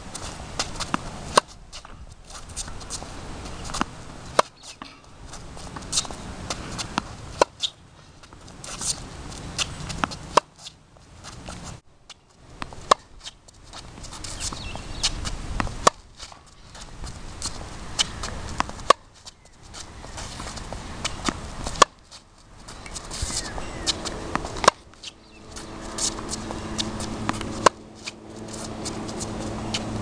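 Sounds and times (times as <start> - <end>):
tennis racket hitting ball: 0.1 - 11.7, 12.6 - 19.1, 19.7 - 30.0
shoe steps on hard court: 12.6 - 30.0.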